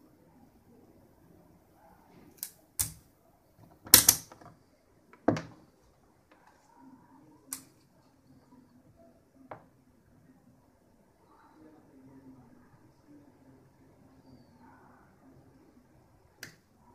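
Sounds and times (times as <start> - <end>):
handling clicks and knocks: 3.6 - 5.6.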